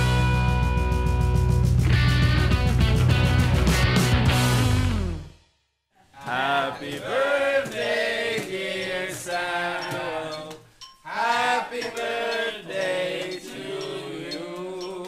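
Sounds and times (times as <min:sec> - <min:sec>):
group singing birthday song: 0:06.1 - 0:15.0.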